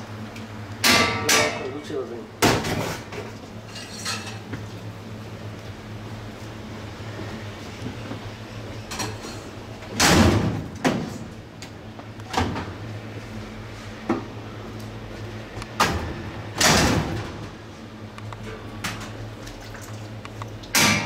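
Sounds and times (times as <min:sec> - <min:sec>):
metal pans clanking and scraping: 0:02.6 - 0:04.4.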